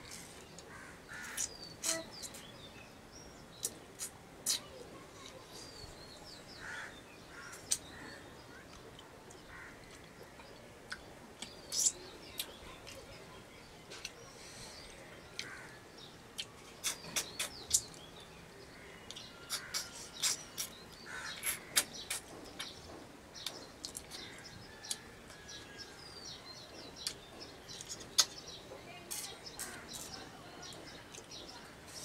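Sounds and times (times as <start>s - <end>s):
birds chirping: 0.0s - 32.0s
mouth smacks and chewing clicks: 3.6s - 4.7s, 16.4s - 18.1s, 19.1s - 22.8s, 27.0s - 28.4s.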